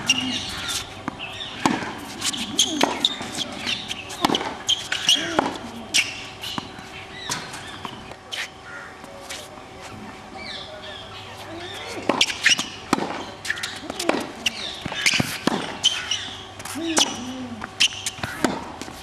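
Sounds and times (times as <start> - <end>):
birds calling: 0.0 - 9.0, 9.9 - 18.7
tennis ball struck and bouncing: 0.7 - 6.7, 12.0 - 15.8, 17.9 - 18.9.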